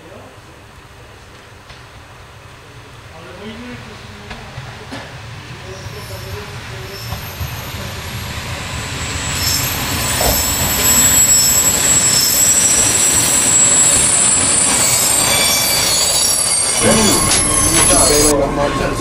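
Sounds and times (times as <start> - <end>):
rumble of train wheels: 0.0 - 19.0
wheel and brake squeal: 5.7 - 19.0.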